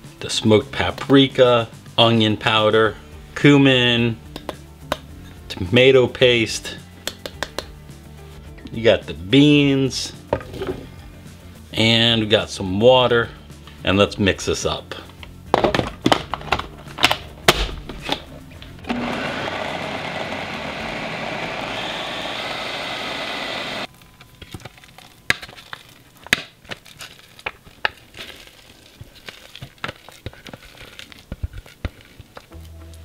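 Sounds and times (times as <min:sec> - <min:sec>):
food processor grinding: 0:18.8 - 0:23.9.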